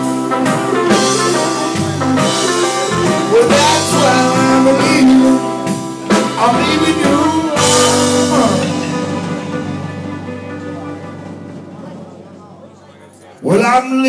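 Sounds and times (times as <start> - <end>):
lead guitar bending notes: 0.0 - 12.9
live blues band playing: 0.0 - 13.2
person singing: 0.7 - 10.9.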